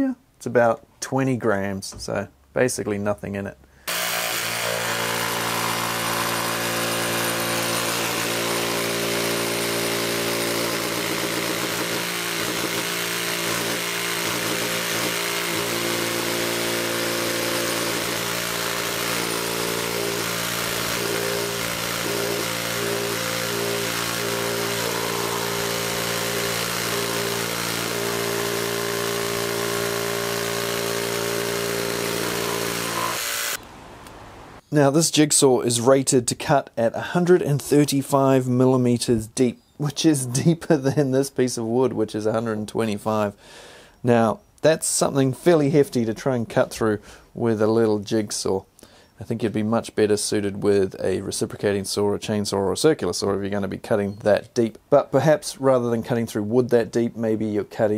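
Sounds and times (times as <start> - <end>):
jigsaw sawing through wood: 3.9 - 33.6.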